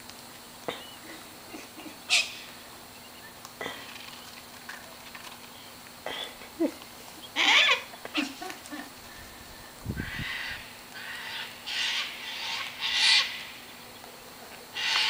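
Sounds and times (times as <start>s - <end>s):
cockatoos giving harsh calls: 0.7s - 4.4s, 6.3s - 14.0s, 14.7s - 15.0s.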